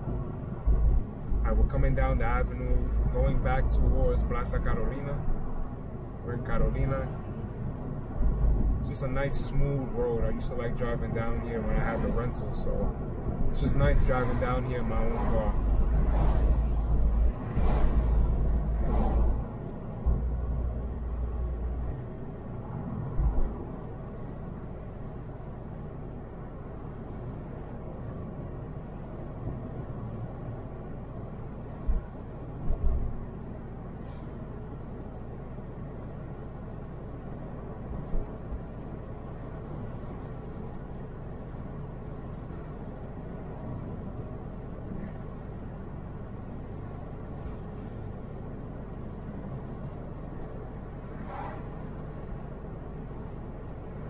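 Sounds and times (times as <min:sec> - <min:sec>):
road and engine rumble: 0:00.0 - 0:54.0
short low thumps: 0:31.8 - 0:33.2.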